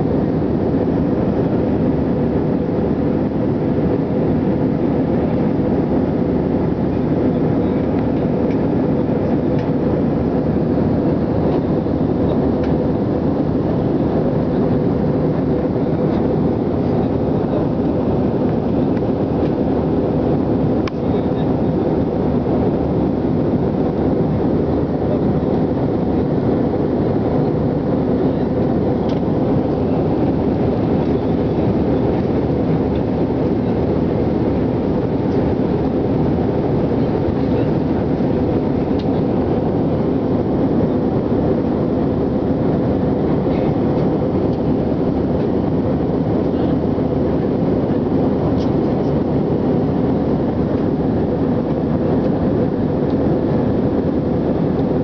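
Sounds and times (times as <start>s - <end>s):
airliner cabin engine noise: 0.0s - 55.0s.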